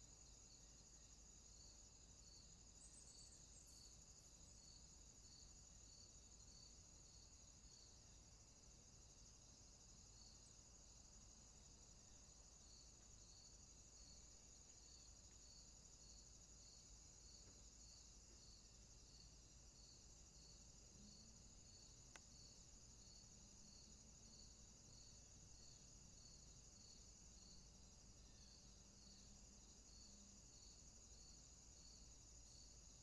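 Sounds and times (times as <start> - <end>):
insect chirping: 0.0 - 33.0
crickets trilling: 0.2 - 33.0
faint click: 22.1 - 22.3.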